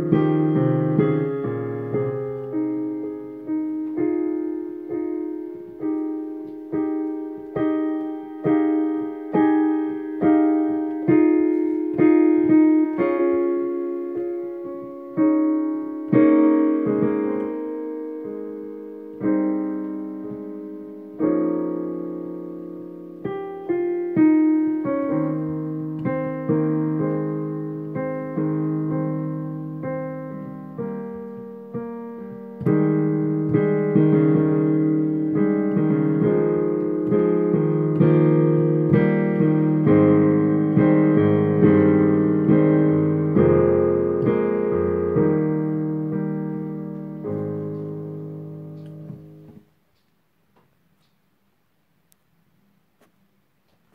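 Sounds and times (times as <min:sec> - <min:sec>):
digital piano chords: 0:00.0 - 0:51.4.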